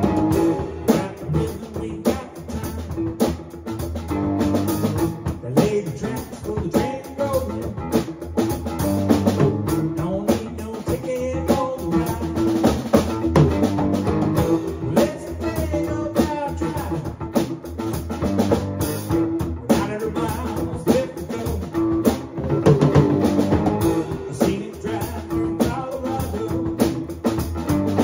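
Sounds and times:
band instruments playing: 0.0 - 5.4, 7.2 - 10.7, 11.9 - 28.0
drum kit rock beat: 0.0 - 28.0.

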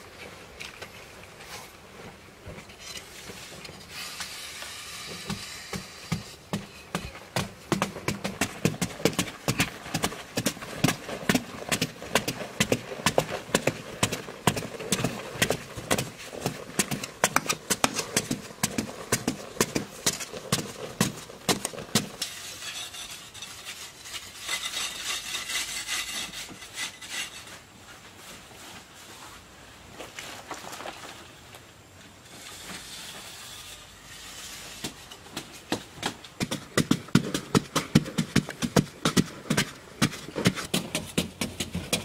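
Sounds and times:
hand sweeping loose dirt: 3.0 - 6.7.

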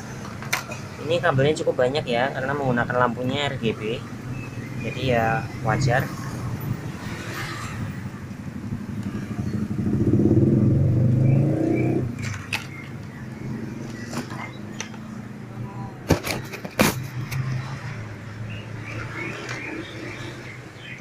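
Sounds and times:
motorcycle engine running: 8.3 - 14.6.

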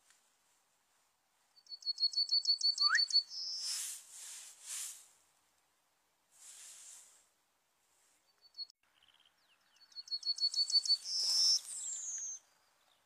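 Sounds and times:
bird singing: 1.6 - 3.7, 8.3 - 13.0
brief hiss: 3.6 - 5.2, 6.4 - 7.3.

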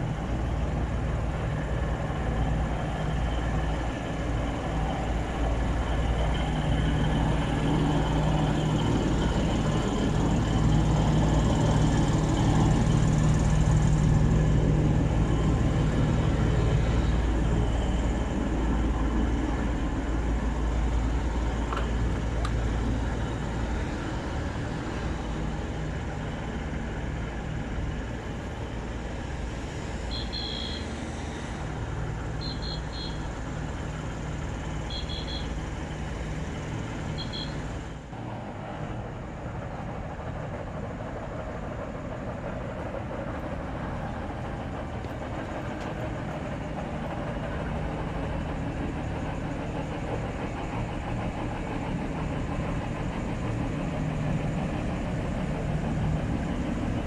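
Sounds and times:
low steady engine hum: 0.0 - 57.0
street traffic: 0.0 - 57.0.

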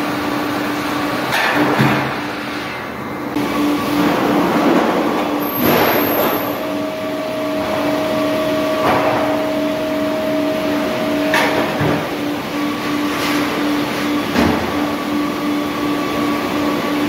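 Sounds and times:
sawmill machinery din: 2.7 - 17.0
high steady tone: 5.4 - 12.9.

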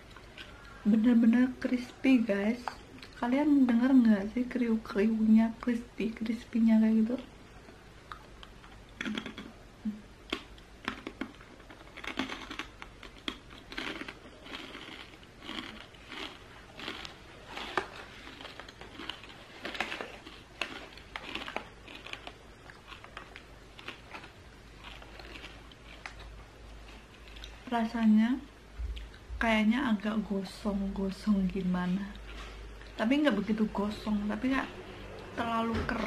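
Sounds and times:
person chewing crispy snack: 0.0 - 0.8, 8.0 - 9.6, 10.2 - 27.7.

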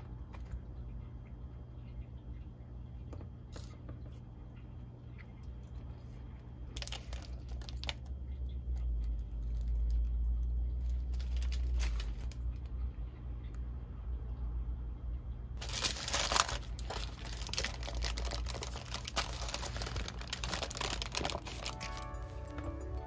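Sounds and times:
low steady hum: 0.0 - 23.0
paper wrappers crinkling: 5.9 - 8.2, 8.8 - 12.6, 15.6 - 23.0.

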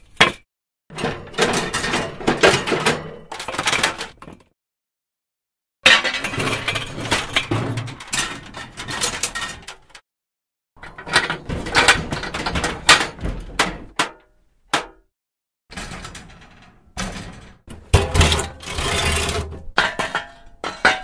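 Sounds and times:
heavy metal clanks: 17.0 - 21.0.

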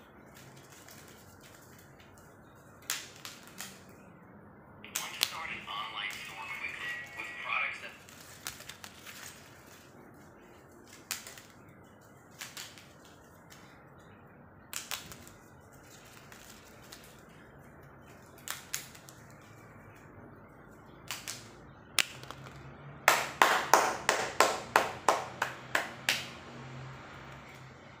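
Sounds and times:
toy snap-pops cracking on tiles: 2.8 - 4.0, 4.9 - 5.5, 10.8 - 11.6, 12.3 - 13.8, 14.6 - 15.4, 18.0 - 19.4, 21.0 - 22.7.

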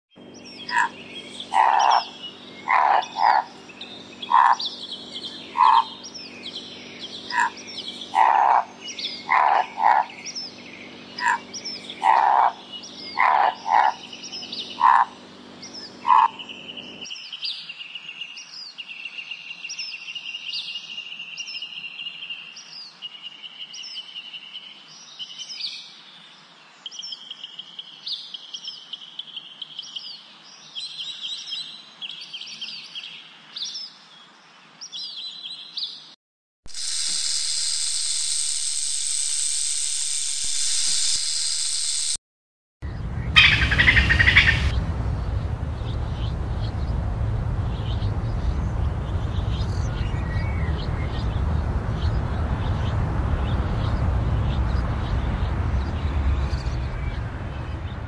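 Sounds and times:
high chirping calls: 0.2 - 17.6, 42.9 - 58.0
loud animal calls: 0.6 - 6.2, 7.2 - 10.5, 11.1 - 16.9, 43.3 - 44.8
rattlesnake rattle hissing: 36.7 - 42.2.

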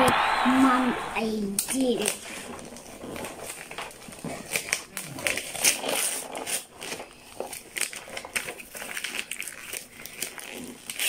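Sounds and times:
wrapping paper tearing and crumpling: 1.8 - 11.0.

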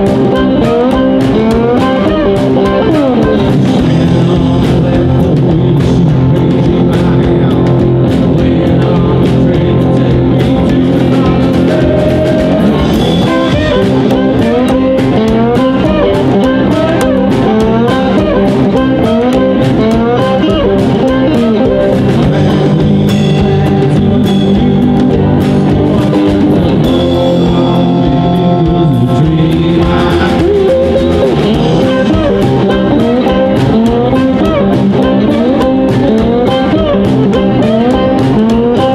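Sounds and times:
blues-rock band playing: 0.0 - 38.9
harmonica: 11.1 - 24.4, 25.9 - 38.9.

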